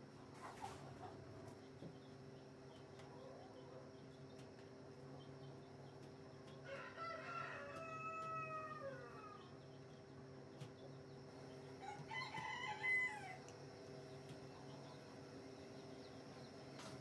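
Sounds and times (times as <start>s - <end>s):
rooster crowing: 6.6s - 9.5s, 11.8s - 13.5s
steady low hum: 8.5s - 17.0s.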